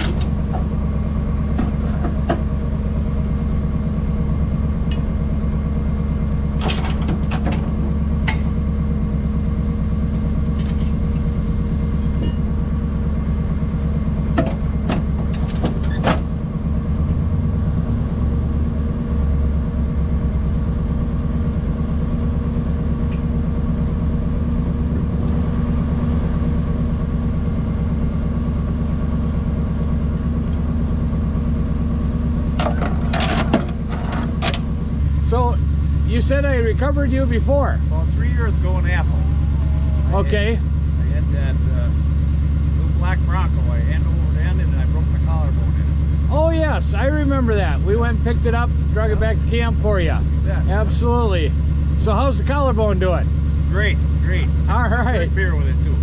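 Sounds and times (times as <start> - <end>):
truck engine idling: 0.0 - 56.0
metallic clanks of tow rigging: 4.3 - 5.4, 6.6 - 8.6, 10.0 - 12.6, 14.3 - 16.4, 25.0 - 25.5, 32.5 - 34.7.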